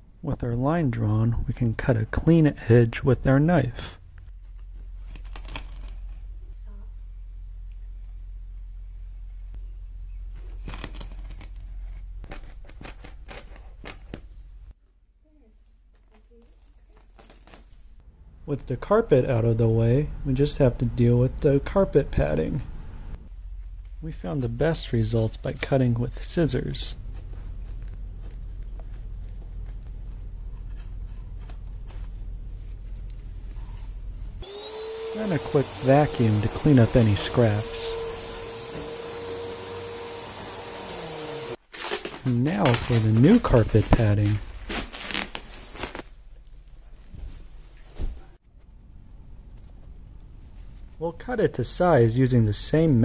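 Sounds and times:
steady low hum: 0.0s - 10.7s, 18.0s - 41.6s.

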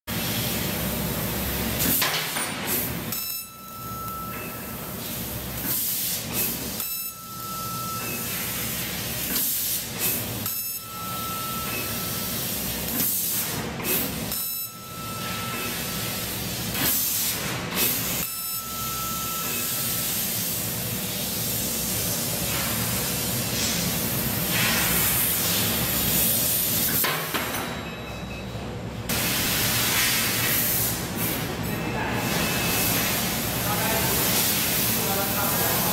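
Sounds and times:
laser cutter gas jet hiss: 4.8s - 6.9s, 8.1s - 10.6s, 15.3s - 27.0s, 29.1s - 31.4s, 32.2s - 35.9s.

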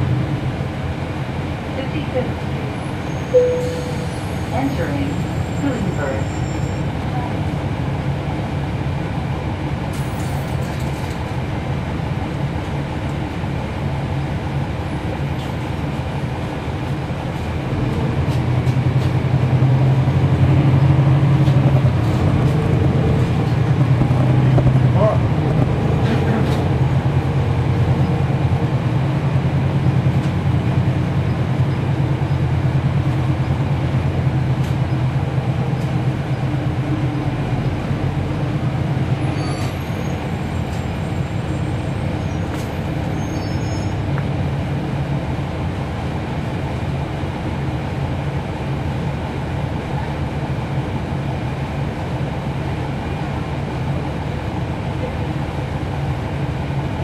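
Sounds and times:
bus diesel engine running: 0.0s - 57.0s
faint high squeaks: 43.2s - 44.0s.

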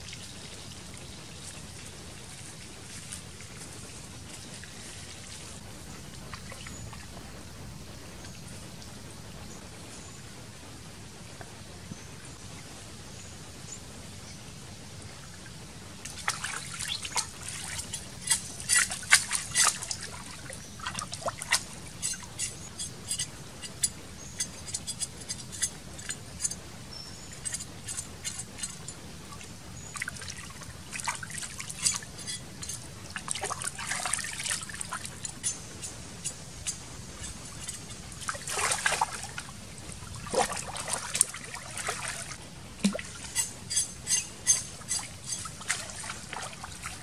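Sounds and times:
water splashing and dribbling: 0.0s - 7.3s, 16.0s - 26.6s, 27.3s - 47.0s
low river noise: 0.0s - 47.0s.

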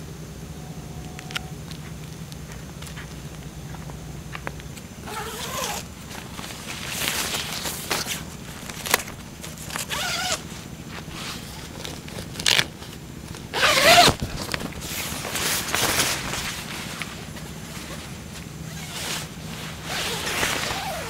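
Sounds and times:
tent fabric rustling: 1.3s - 21.0s
zipper pulled: 5.0s - 5.9s, 9.7s - 10.5s, 13.5s - 14.7s, 18.7s - 21.0s.

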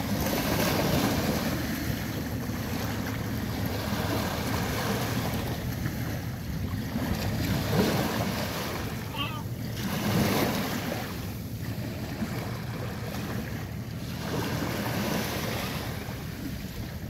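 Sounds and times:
sea waves breaking on shore: 0.0s - 17.0s
wind rumbling on microphone: 0.0s - 17.0s.

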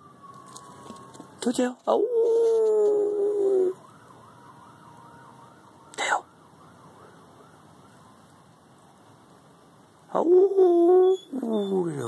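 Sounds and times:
distant siren wailing: 0.0s - 8.5s, 10.1s - 12.0s
held vocal howl: 2.0s - 3.8s.

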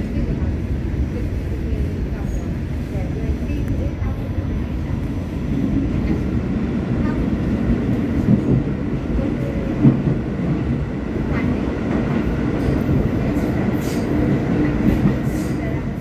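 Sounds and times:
subway train rumble: 0.0s - 16.0s.

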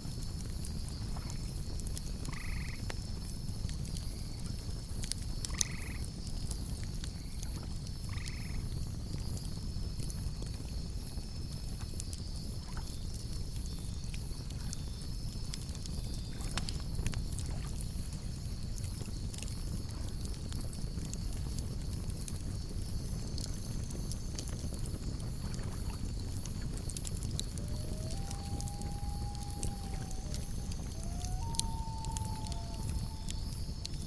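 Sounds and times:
campfire crackling and popping: 0.0s - 34.0s
insects chirring: 0.0s - 34.0s.

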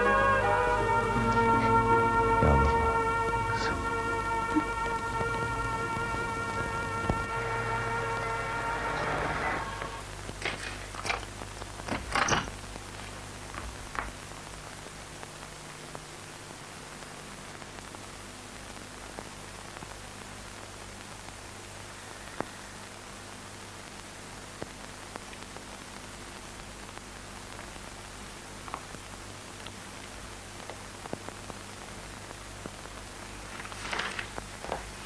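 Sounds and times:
low hum: 0.0s - 11.8s
film soundtrack hiss: 0.0s - 35.0s.

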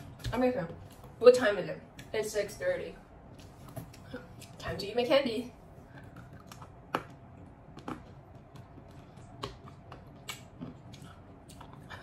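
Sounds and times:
hard candy crunching between teeth: 5.9s - 12.0s.

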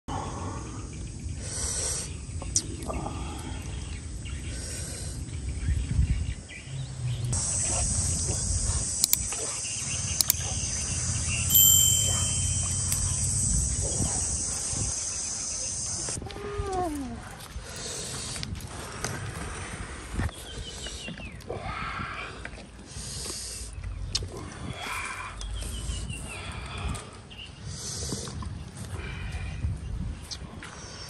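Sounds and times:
sharp clicks: 9.0s - 9.3s, 10.2s - 10.4s.

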